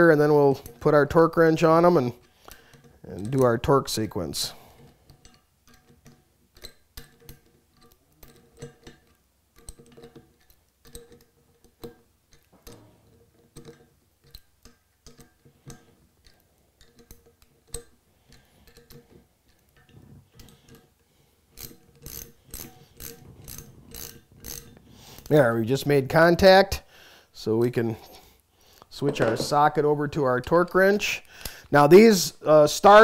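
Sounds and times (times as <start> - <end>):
metallic clicks and taps: 4.8 - 25.3
ratchet wrench clicking: 21.5 - 25.3.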